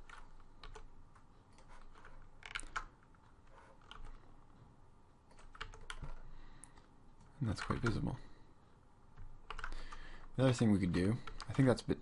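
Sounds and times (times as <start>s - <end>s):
keyboard and mouse clicks: 0.0s - 4.3s, 5.2s - 8.1s, 9.1s - 10.3s.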